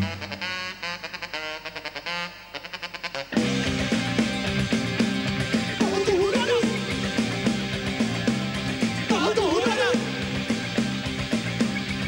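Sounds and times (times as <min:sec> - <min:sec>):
saxophone: 0:00.0 - 0:03.9
electric guitar: 0:03.3 - 0:12.0
drums on a steady beat: 0:03.4 - 0:12.0
electric bass: 0:03.4 - 0:12.0
person singing: 0:09.1 - 0:10.3.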